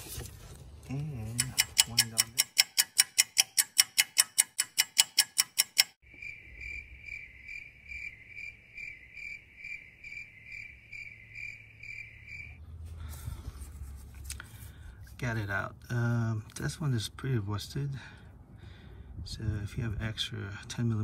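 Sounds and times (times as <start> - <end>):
ratchet clicking: 1.3 - 6.0.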